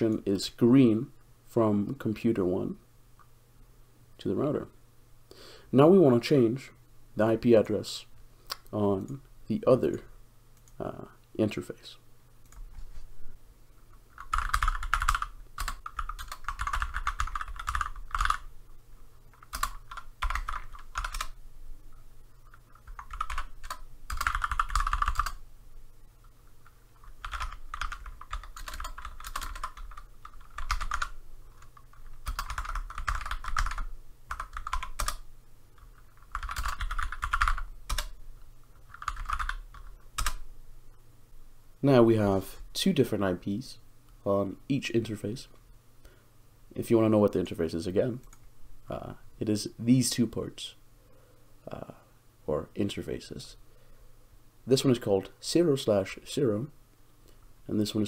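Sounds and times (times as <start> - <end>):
typing on computer keyboard: 14.1 - 18.5, 19.3 - 21.4, 22.5 - 25.4, 27.0 - 35.2, 35.8 - 38.2, 38.8 - 40.4.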